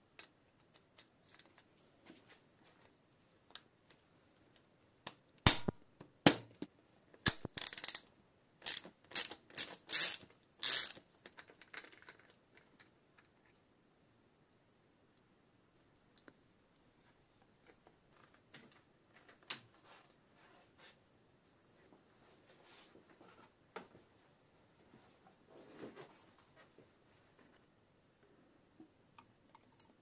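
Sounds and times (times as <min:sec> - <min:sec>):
nut and socket clicking: 0:07.2 - 0:11.9
socket ratchet wrench clicking: 0:07.3 - 0:11.0.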